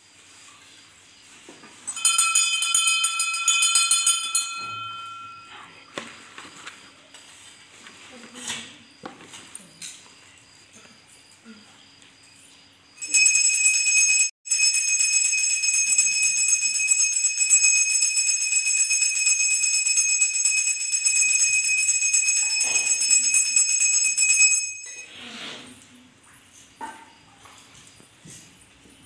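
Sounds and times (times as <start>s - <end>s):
brass hand bell ringing: 1.9s - 5.5s, 13.0s - 25.1s.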